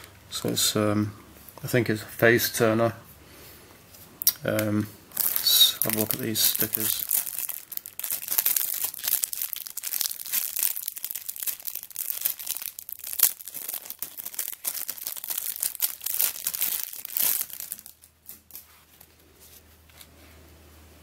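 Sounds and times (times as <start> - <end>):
plastic bag crinkling: 5.1 - 19.1.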